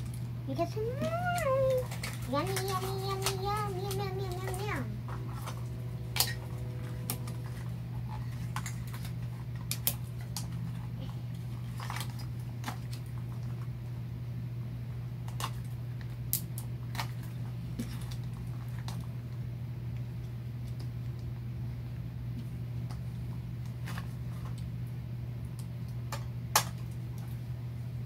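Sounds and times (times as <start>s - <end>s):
steady low hum: 0.0s - 28.0s
plastic toys clicking: 0.9s - 4.8s.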